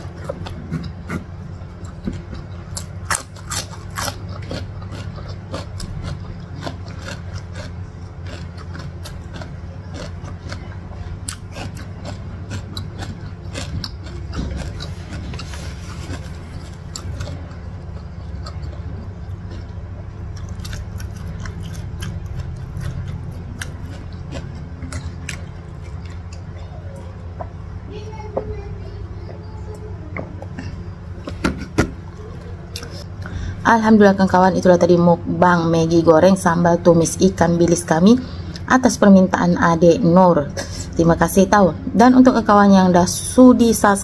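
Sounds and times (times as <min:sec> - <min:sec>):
chewing crunchy cucumber: 0:00.0 - 0:27.8, 0:30.4 - 0:33.5
low steady hum: 0:00.0 - 0:44.0.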